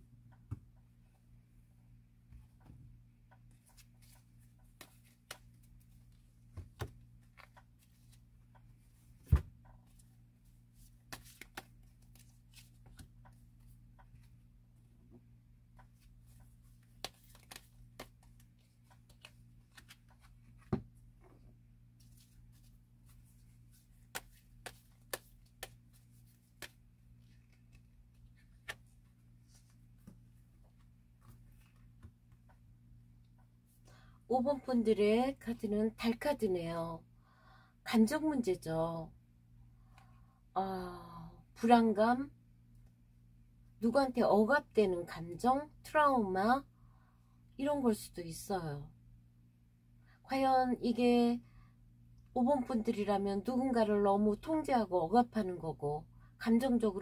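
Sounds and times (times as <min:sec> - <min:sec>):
faint steady hum: 0:00.0 - 0:57.0
cards tapping and sliding: 0:11.1 - 0:13.1, 0:16.8 - 0:20.9, 0:22.2 - 0:28.9.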